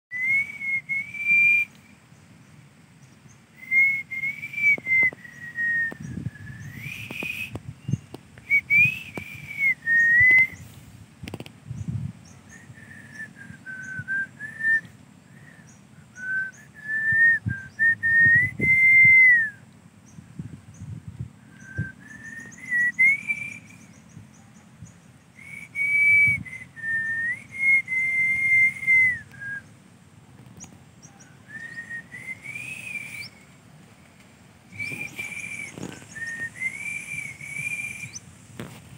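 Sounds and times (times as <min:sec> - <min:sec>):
person whistling a slow tune: 0:00.1 - 0:01.8, 0:03.6 - 0:10.6, 0:12.5 - 0:19.6, 0:21.5 - 0:23.9, 0:25.4 - 0:29.7, 0:31.5 - 0:33.5, 0:34.7 - 0:38.2.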